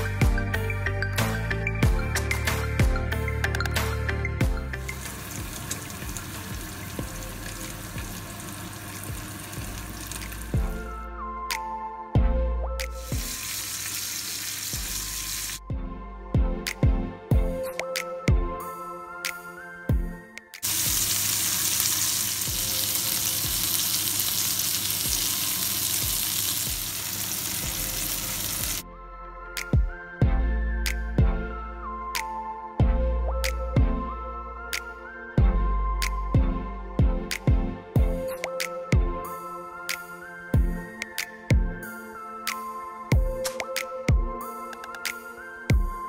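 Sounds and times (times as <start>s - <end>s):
steak sizzling with crackling pops: 20.6s - 28.8s.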